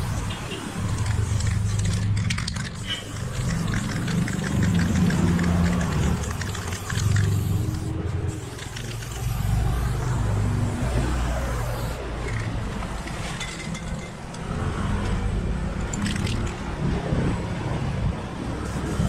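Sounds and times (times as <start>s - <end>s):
spray paint can hissing: 0.0s - 13.1s, 18.6s - 19.0s.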